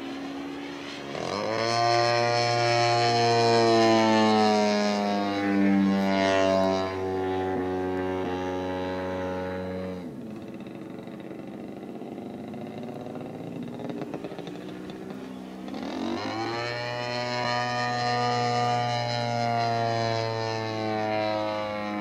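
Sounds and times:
propeller plane engine droning: 0.0 - 22.0.

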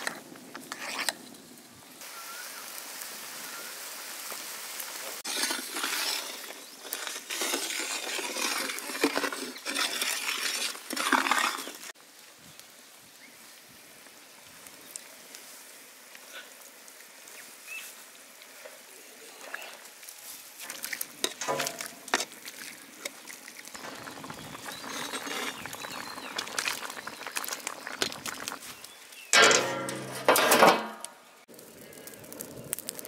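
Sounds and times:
utensil clinking and scraping pot: 5.2 - 11.9, 20.6 - 28.6, 29.3 - 31.1
gravy sizzling in a pot: 20.5 - 29.4.

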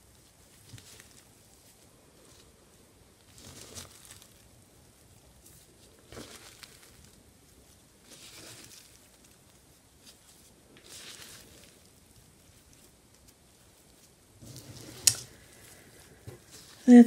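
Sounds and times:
hand rustling through compost: 0.0 - 17.0.

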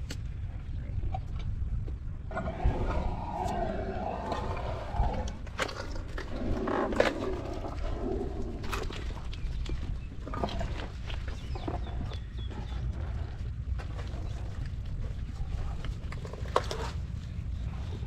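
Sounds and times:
wind rumble on microphone: 0.0 - 18.0
birds chirping: 2.3 - 15.8.

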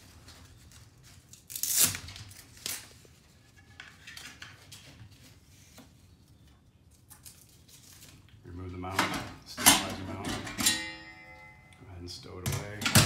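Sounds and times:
velcro strap ripping: 1.3 - 3.0.

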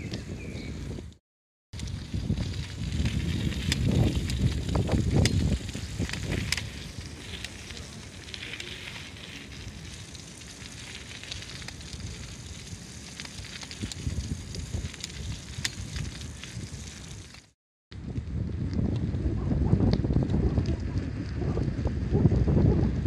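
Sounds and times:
bicycle tyres hissing on wet ground: 1.8 - 17.6.

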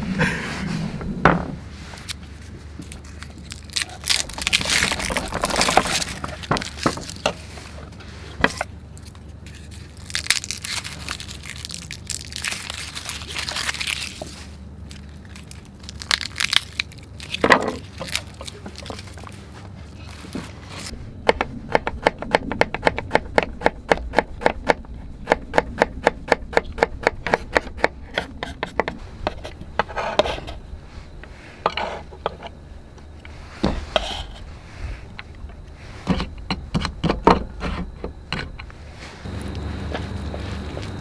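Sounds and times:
mushrooms pulled apart: 2.0 - 7.8, 8.5 - 21.0.

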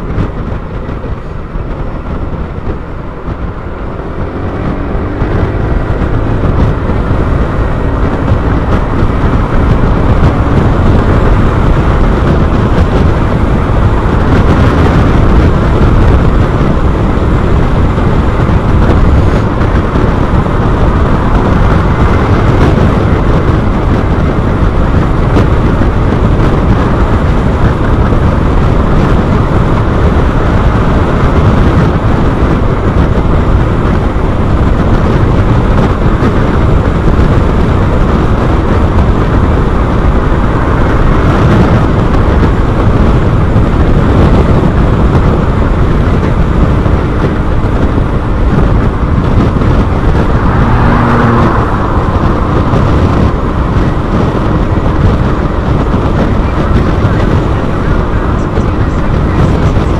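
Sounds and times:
road and motor noise: 0.0 - 59.9
wind buffeting microphone: 0.0 - 59.9.

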